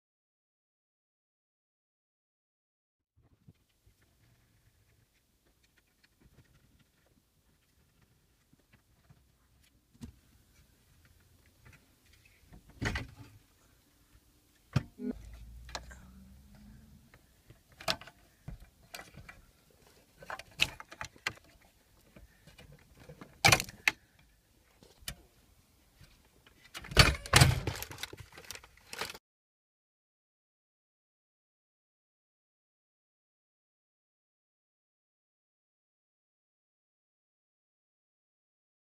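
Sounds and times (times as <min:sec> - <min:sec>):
plastic clicks and rattles: 0:20.2 - 0:21.7, 0:22.5 - 0:24.0, 0:26.5 - 0:29.2.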